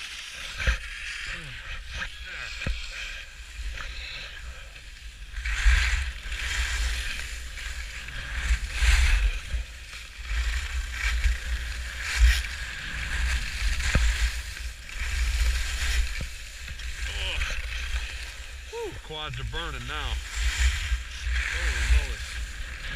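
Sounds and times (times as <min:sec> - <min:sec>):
skis scraping over snow: 0:00.0 - 0:22.9.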